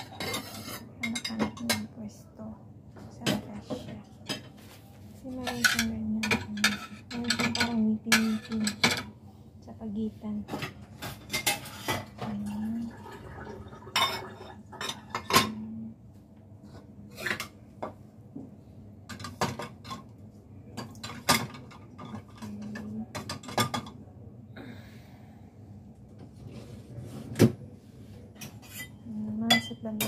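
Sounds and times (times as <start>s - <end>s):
plates and bowls clinking: 0.0s - 1.9s, 5.4s - 9.1s, 10.5s - 15.6s, 20.8s - 24.0s, 28.4s - 30.0s.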